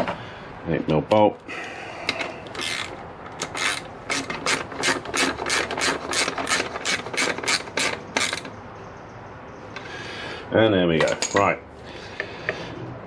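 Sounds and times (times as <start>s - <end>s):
ratchet clicks: 2.5s - 8.6s.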